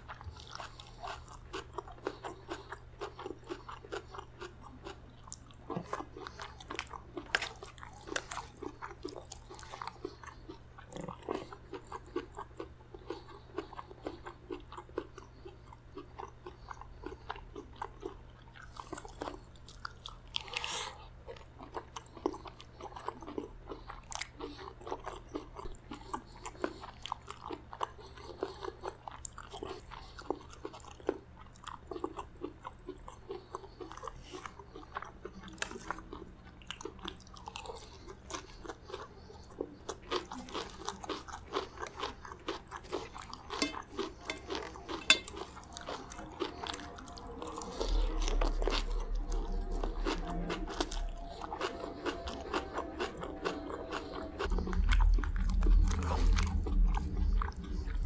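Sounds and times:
chewing and crunching: 0.0 - 58.0
spoon against steel plate: 43.6 - 45.5.

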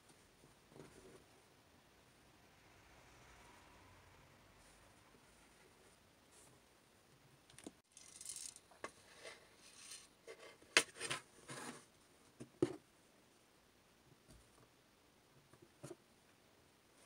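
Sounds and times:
plastic beads rattling: 7.5 - 8.8.

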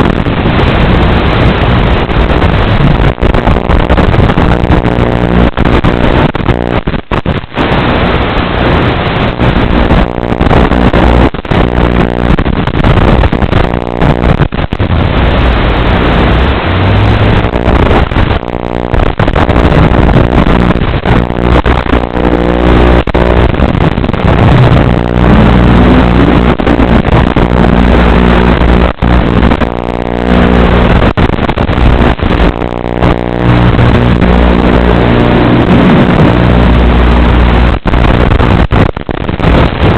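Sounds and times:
radio signal crackling: 0.0 - 39.9
drone motors buzzing: 15.8 - 31.1, 31.9 - 38.6.

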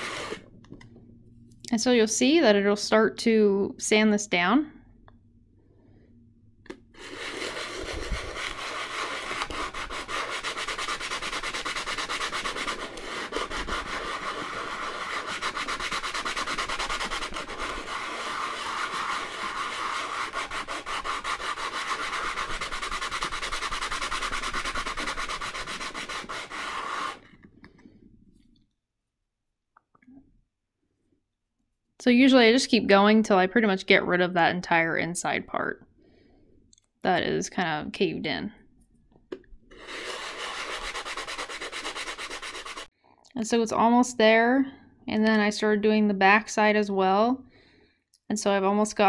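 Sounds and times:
stone rasping on sandpaper: 0.0 - 0.4, 7.0 - 27.3, 39.7 - 42.9.

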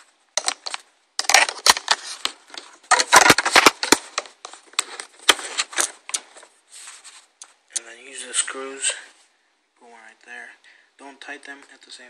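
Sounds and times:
bracket clicks and scraping: 0.4 - 6.5.

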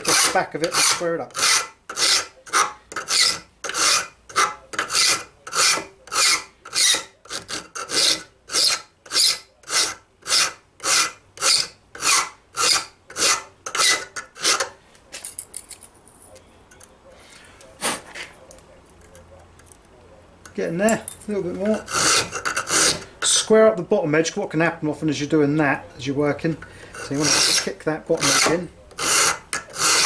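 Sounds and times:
hand file rasping on steel: 0.0 - 14.7, 21.7 - 23.1, 26.8 - 30.0.

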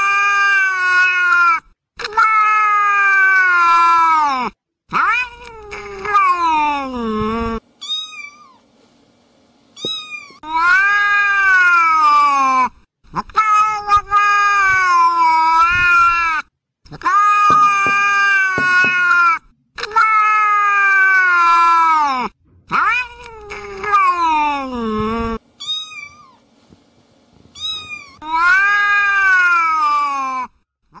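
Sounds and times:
cat yowling: 0.0 - 6.9, 9.8 - 12.6, 17.0 - 24.7, 25.6 - 26.4, 27.6 - 30.5
cat meowing: 4.9 - 6.7, 25.6 - 26.4, 27.6 - 30.5.

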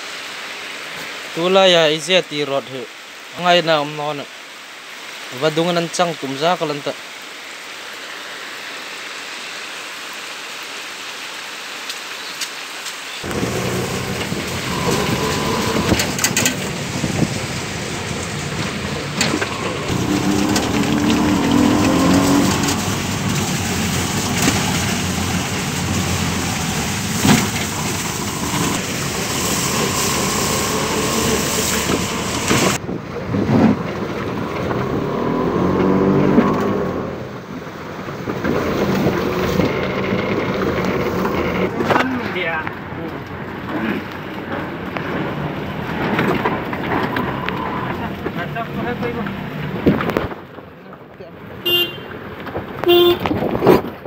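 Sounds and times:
steady rain: 0.0 - 54.0
vehicle engine rumble: 13.2 - 54.0
water splashing under tyres: 13.2 - 54.0
wind on microphone: 14.2 - 23.1.

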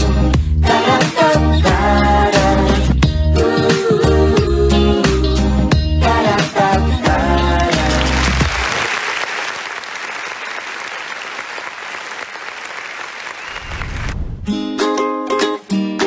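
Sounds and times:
song ending: 0.0 - 8.8
applause: 7.6 - 14.2.

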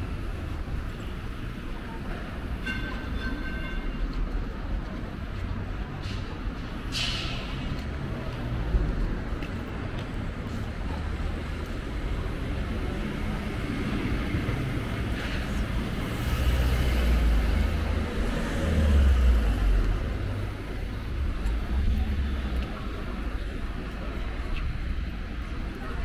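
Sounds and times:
passing cars hum: 5.6 - 26.0
low engine rumble: 16.8 - 26.0.

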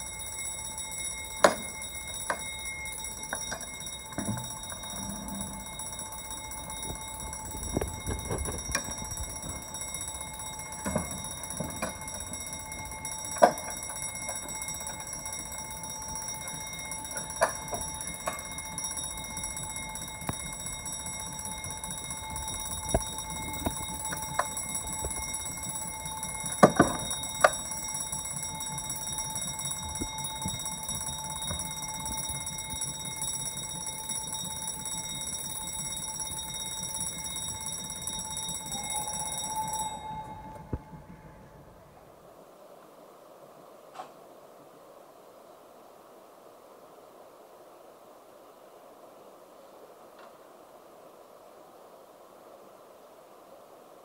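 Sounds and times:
continuous high ringing tones: 0.0 - 47.5.

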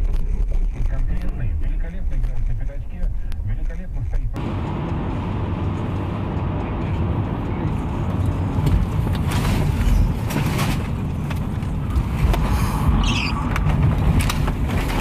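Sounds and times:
car rumble and buffeting: 0.0 - 15.0.

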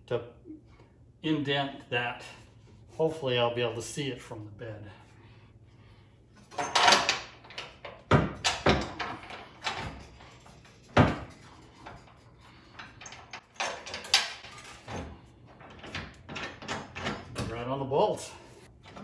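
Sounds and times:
metal bracket clanking on steel frame: 6.4 - 17.7.

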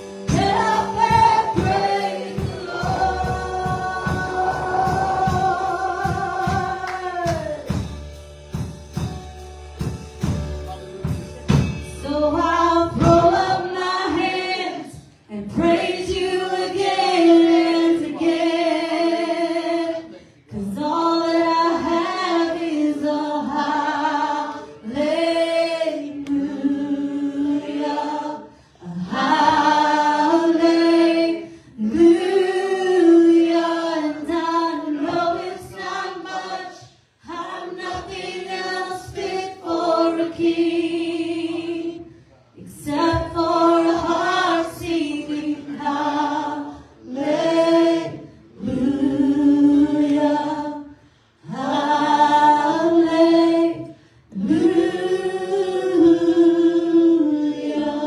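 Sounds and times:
people singing along: 0.0 - 8.0, 11.9 - 58.0
drum kit: 0.0 - 18.7
woman singing lead: 0.3 - 7.8.

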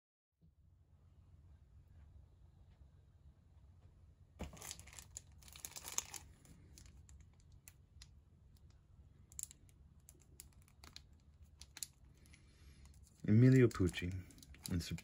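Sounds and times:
plastic wrap crinkling: 4.4 - 15.0.

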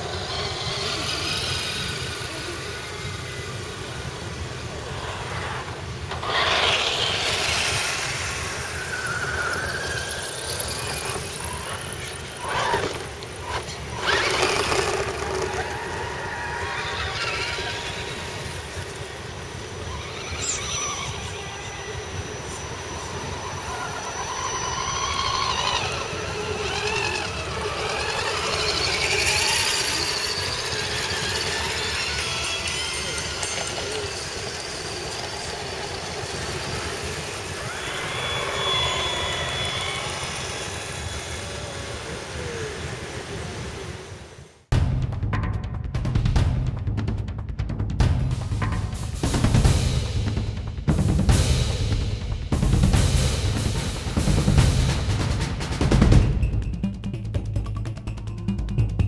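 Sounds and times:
electric motors whining: 0.0 - 44.6.

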